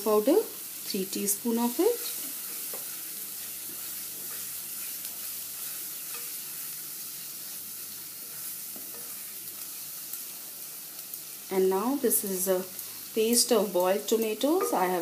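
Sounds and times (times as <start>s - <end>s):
onion paste sizzling in a pan: 0.0s - 15.0s
spatula scraping a pan: 1.7s - 7.6s.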